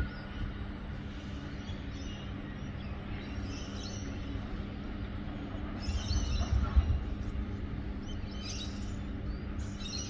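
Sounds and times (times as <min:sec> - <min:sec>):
birds chirping: 0:00.0 - 0:10.0
distant freight train rumble: 0:00.0 - 0:10.0.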